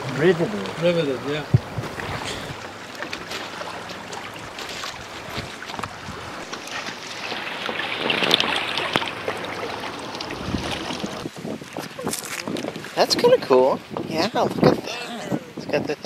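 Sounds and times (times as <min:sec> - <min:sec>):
waves lapping on rocks: 0:00.0 - 0:16.0
wind on microphone: 0:01.3 - 0:02.6, 0:04.4 - 0:06.5, 0:10.2 - 0:16.0.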